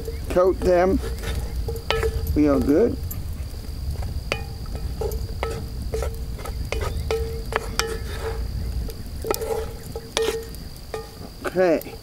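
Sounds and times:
spoon knocking metal pot: 0.0 - 3.3, 4.0 - 12.0
insects chirring: 0.0 - 12.0.

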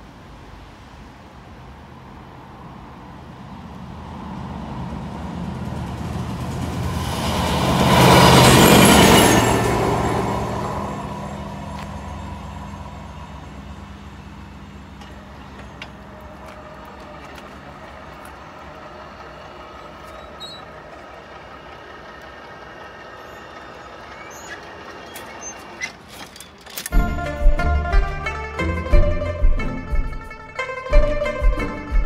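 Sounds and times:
diesel engine of rail machine: 0.0 - 32.0.

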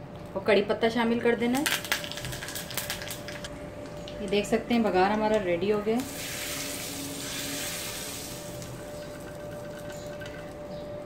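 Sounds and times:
hot oil sizzling: 1.6 - 3.5, 6.0 - 10.5.

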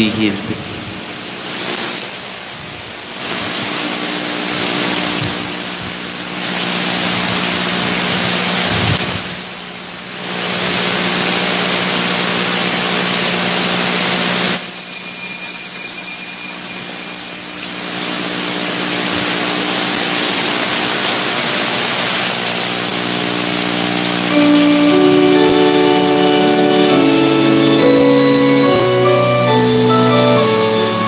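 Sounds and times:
high-pitched tone: 14.6 - 18.7, 24.2 - 31.0
background hiss: 23.8 - 31.0.

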